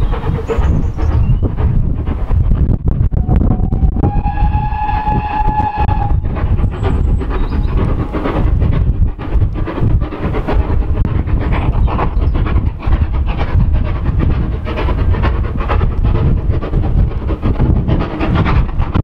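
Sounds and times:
low rumble: 0.0 - 19.0
steam locomotive chuffing: 0.0 - 19.0.

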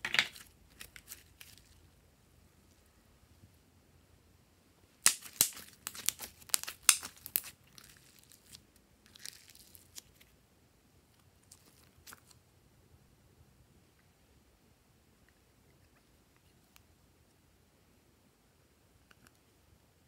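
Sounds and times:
wet clicks and pops: 5.1 - 7.5.

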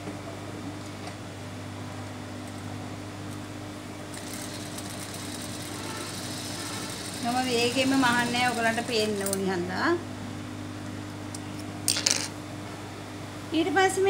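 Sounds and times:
sewing machine motor hum: 4.0 - 9.6.

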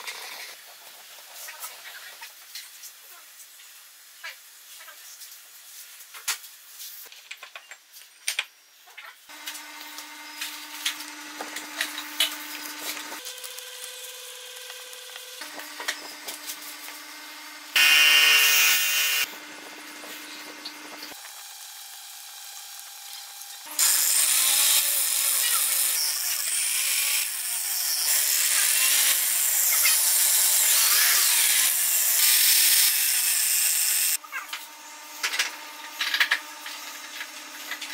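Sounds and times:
angle grinder grinding steel: 9.3 - 37.9
power tool running: 9.3 - 37.9.

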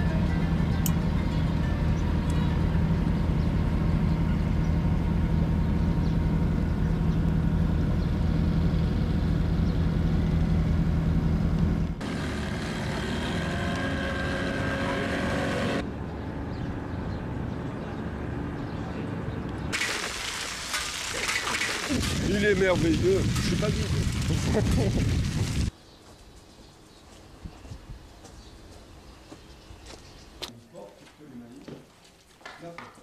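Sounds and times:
boat engine humming: 0.0 - 16.5.

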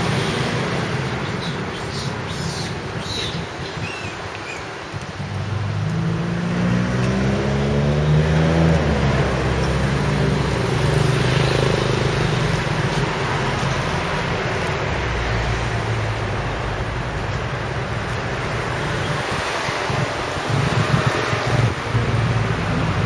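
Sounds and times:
street noise: 0.0 - 23.0
vehicle engine revving: 5.8 - 14.2.

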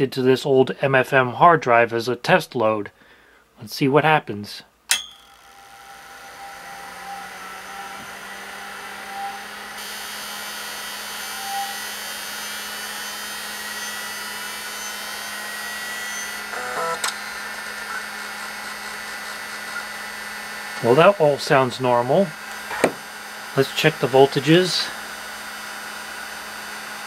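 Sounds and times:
hard drive motor whine: 5.1 - 27.0
drive head buzzing and click: 16.4 - 20.9, 22.4 - 23.1.

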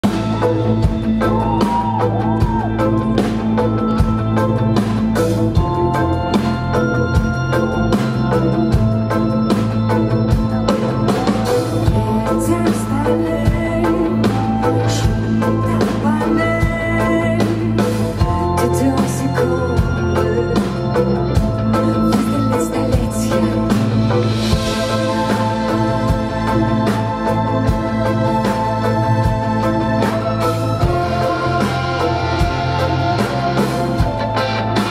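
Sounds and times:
bass guitar: 0.0 - 34.9
drum kit: 0.0 - 34.9
electric guitars: 0.0 - 34.9
keyboards: 0.0 - 34.9
person singing: 11.0 - 34.9.

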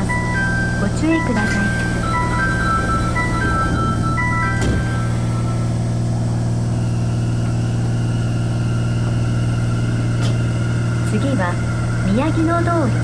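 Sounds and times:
chime melody: 0.0 - 7.3
faint high whine: 0.0 - 13.0
train low hum: 0.0 - 13.0.

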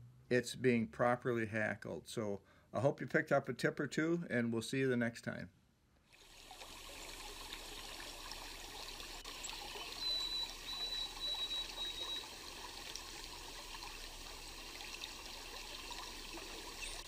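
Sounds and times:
running water trickling: 6.0 - 17.0.

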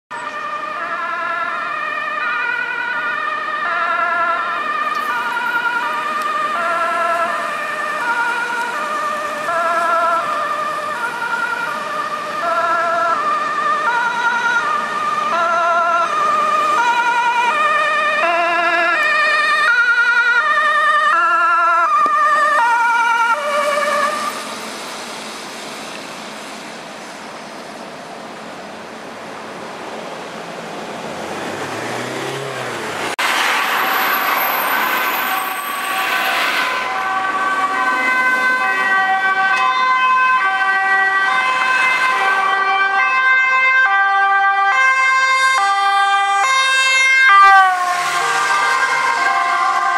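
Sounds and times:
ambulance two-tone siren: 0.1 - 24.6, 33.1 - 49.9
ambulance engine: 0.1 - 49.9
road traffic: 0.1 - 49.9.

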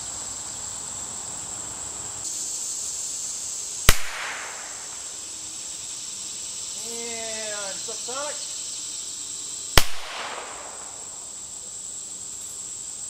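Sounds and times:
high insect drone: 0.0 - 13.0
revolver gunshot: 3.9 - 5.0, 9.8 - 11.2.

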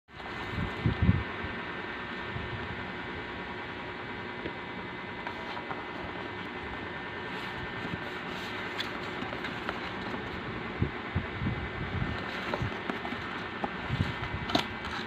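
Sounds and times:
background hum and hiss: 0.1 - 15.0
cardboard boxes rustling: 5.2 - 6.6, 7.2 - 10.5, 12.0 - 15.0.

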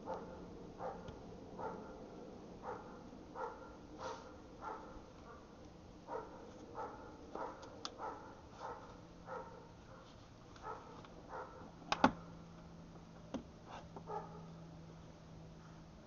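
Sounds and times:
dog barking: 0.0 - 2.0, 2.6 - 5.5, 6.1 - 12.3, 14.1 - 14.5.

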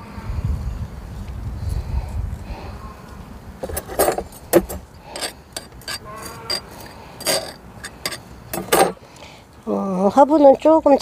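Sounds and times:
grit clicking and scraping: 3.6 - 8.8.

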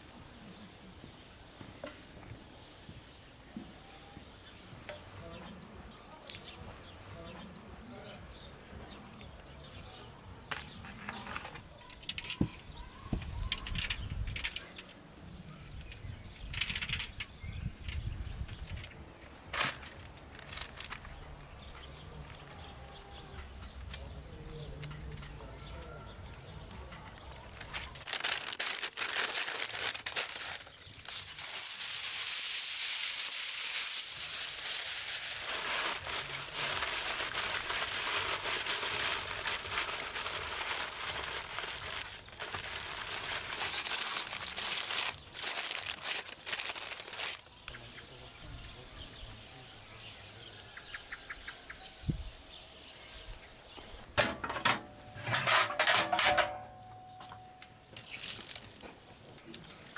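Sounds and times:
baking paper crinkling: 10.4 - 25.8, 26.6 - 47.5, 54.2 - 56.8, 57.6 - 59.9.

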